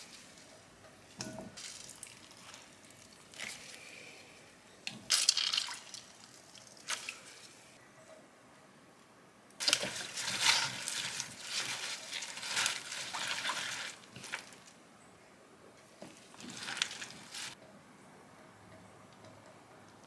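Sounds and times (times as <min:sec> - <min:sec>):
wet squishing and rustling: 0:01.6 - 0:03.8, 0:05.1 - 0:07.4, 0:09.6 - 0:14.8, 0:16.0 - 0:17.6.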